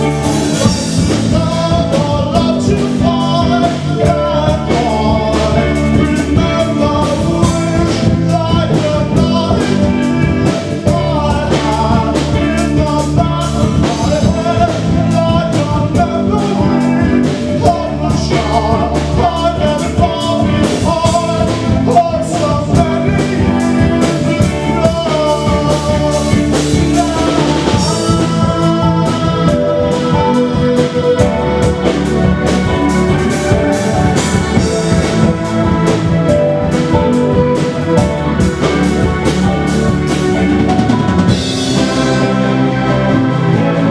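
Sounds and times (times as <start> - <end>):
man singing into a microphone: 0.0 - 35.5
drums: 0.0 - 43.9
guitar: 0.0 - 43.9.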